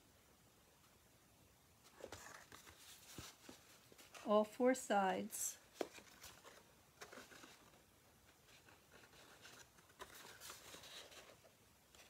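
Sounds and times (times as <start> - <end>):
cardstock rustling and tapping: 1.9 - 4.3, 5.7 - 12.0.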